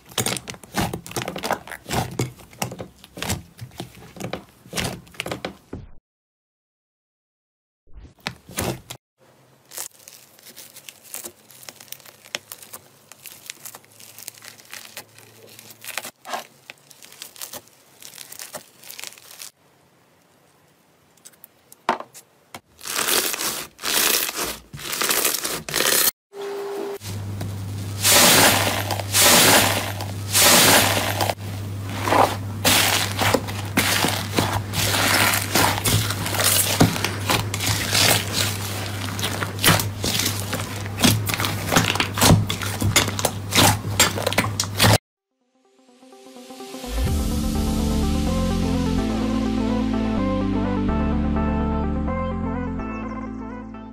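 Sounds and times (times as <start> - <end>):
hands squishing slime: 0.0 - 5.4, 9.7 - 19.5, 32.0 - 44.9.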